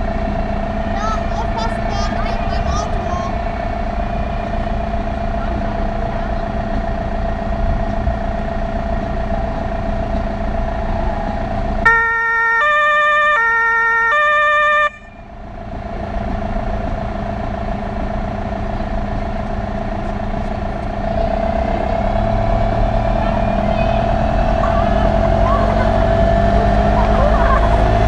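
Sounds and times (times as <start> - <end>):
vehicle engine drone: 0.0 - 28.0
two-tone fire siren: 10.6 - 15.4.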